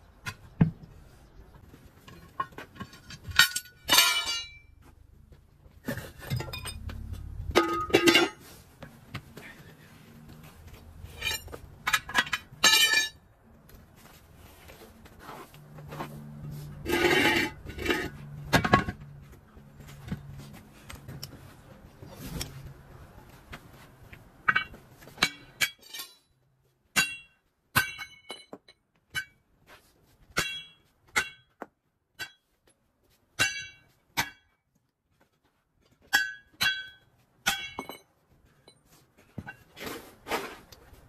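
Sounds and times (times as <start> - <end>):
sledgehammer clanking on steel rim: 2.1 - 4.7, 6.0 - 8.4, 16.8 - 19.0, 36.1 - 38.0.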